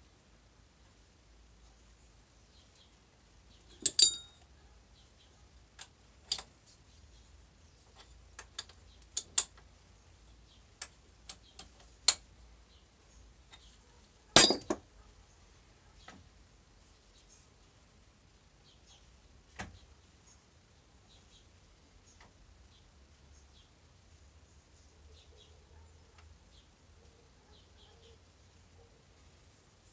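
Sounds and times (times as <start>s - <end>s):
metal clicks and clinks: 3.8s - 4.3s, 14.4s - 14.8s
ringing metal clank: 3.8s - 4.3s, 14.4s - 14.8s.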